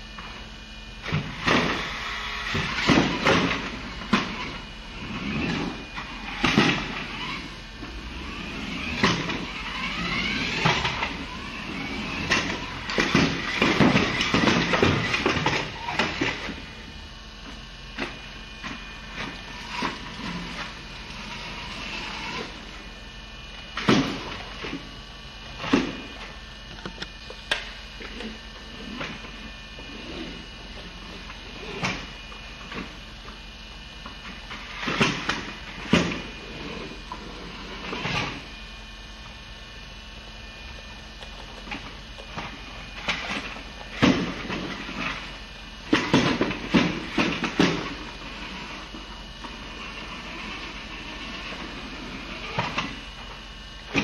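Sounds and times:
toy car motor whirring: 1.2s - 16.9s, 19.0s - 22.8s, 46.6s - 53.0s.

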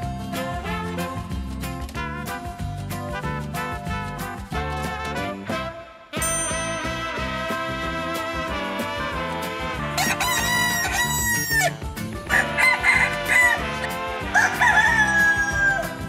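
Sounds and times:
upbeat background music: 0.0s - 16.0s
roosters crowing: 9.8s - 16.0s.

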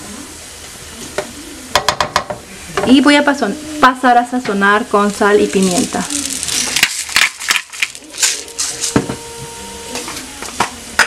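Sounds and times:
onion and garlic sizzling in oil: 0.2s - 11.0s
grinder gritty crunches: 5.1s - 9.0s.

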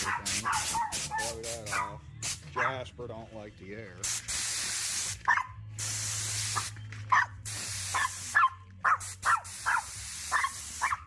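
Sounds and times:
small dog barking: 0.0s - 2.0s, 5.3s - 5.6s, 8.0s - 11.0s
compressed air hissing: 0.0s - 2.4s, 4.0s - 5.2s, 5.8s - 6.8s, 7.4s - 8.4s, 9.0s - 11.0s.

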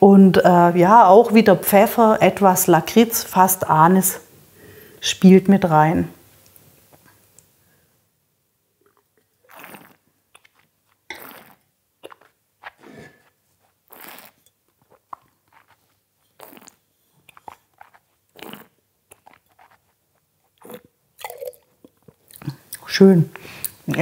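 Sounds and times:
woman spitting: 8.8s - 14.4s, 16.4s - 17.5s, 18.3s - 18.8s
person slurping wine: 8.8s - 21.6s
wet mouth clicks: 8.8s - 22.9s.

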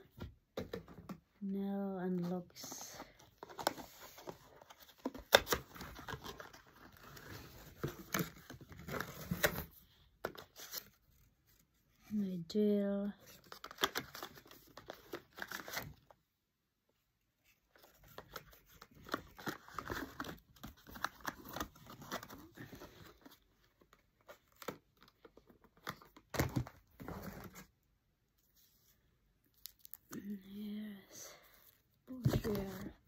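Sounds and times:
paper packaging rustling and tearing: 3.2s - 11.0s, 13.2s - 16.1s, 17.7s - 27.7s, 32.1s - 33.0s.

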